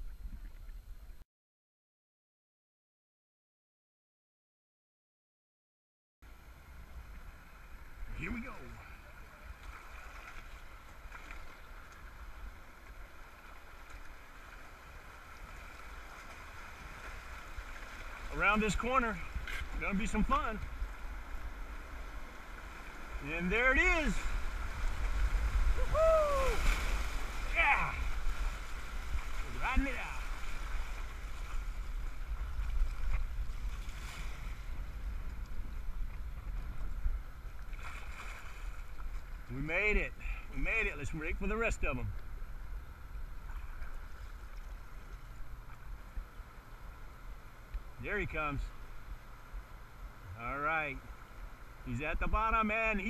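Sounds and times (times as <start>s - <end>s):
river water splashing on kayak: 6.3s - 40.9s, 41.5s - 53.0s
low steady rumble: 10.5s - 53.0s
faint ticks: 47.7s - 47.9s.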